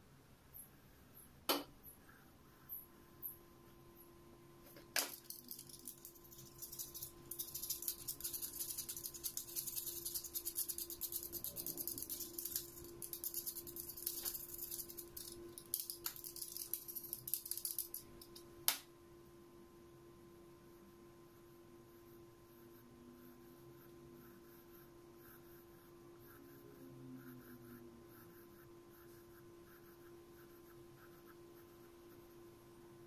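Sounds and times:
pencil tapping paper: 4.7 - 18.8
pencil scratching on paper: 6.4 - 15.1, 21.3 - 32.5.

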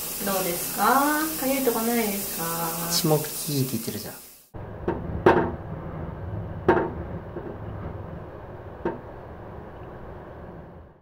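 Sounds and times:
range hood knocking: 4.6 - 9.7
wind rumbling in exhaust duct: 4.6 - 11.0.

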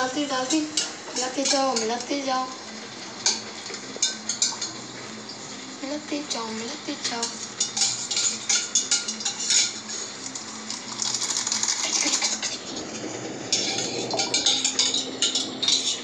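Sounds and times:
spoon clinking in steel bowl: 7.2 - 9.8, 13.5 - 16.0.

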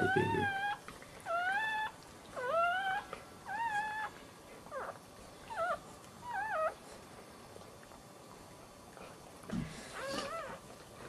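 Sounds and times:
puppy squealing: 0.0 - 6.8, 9.9 - 10.6.

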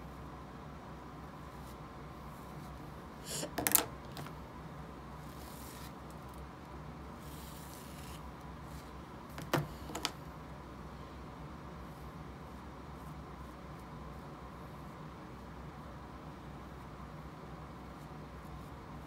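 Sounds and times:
low room hum: 0.0 - 19.0
brush strokes through hair: 5.2 - 6.3.

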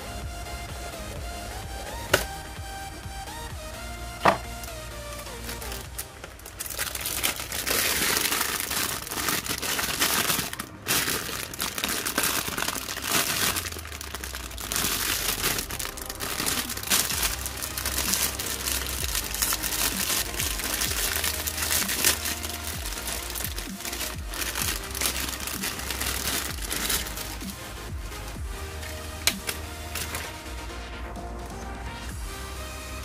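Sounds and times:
plastic bag crinkling: 4.2 - 30.6.

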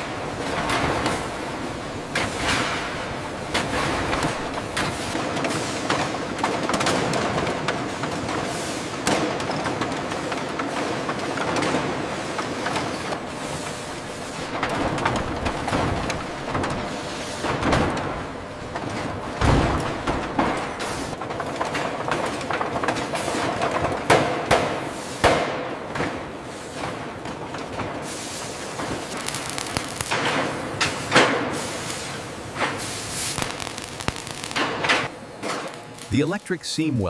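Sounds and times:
heavy factory machinery din: 0.0 - 37.0.

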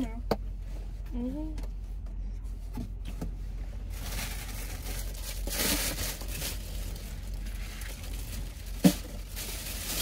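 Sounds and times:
food packaging rustling and crinkling: 3.8 - 10.0.

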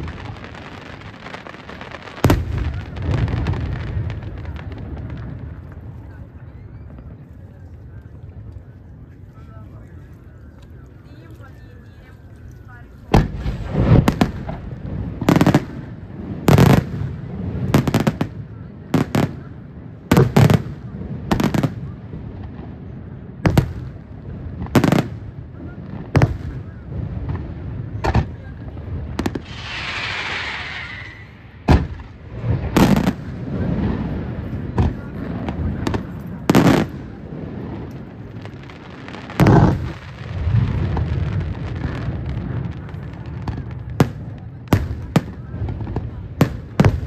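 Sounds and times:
firework hissing: 29.1 - 34.4
firework shells bursting: 29.2 - 32.2.

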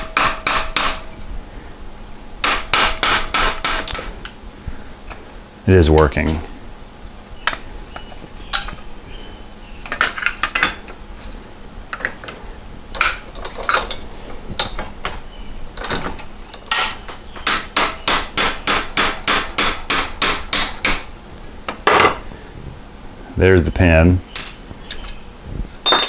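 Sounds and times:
hammer striking metal punch: 0.0 - 1.1, 2.4 - 4.1, 16.8 - 21.0.

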